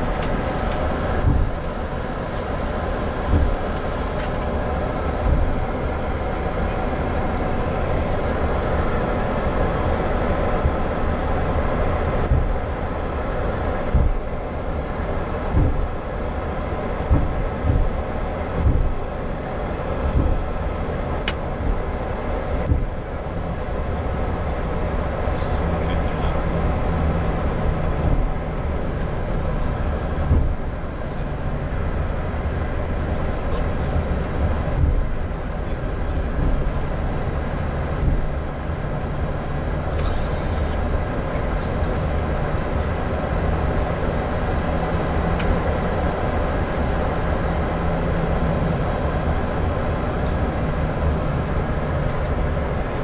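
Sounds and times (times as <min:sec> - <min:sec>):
airframe rolling over taxiway: 0:00.0 - 0:53.0
jet engines idling: 0:00.0 - 0:53.0
soft bumps: 0:17.1 - 0:18.0
brief hiss: 0:39.9 - 0:40.8.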